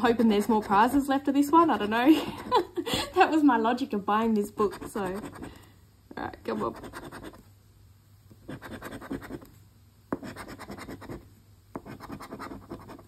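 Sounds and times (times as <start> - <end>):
coin scratching a lottery ticket: 11.8 - 13.0.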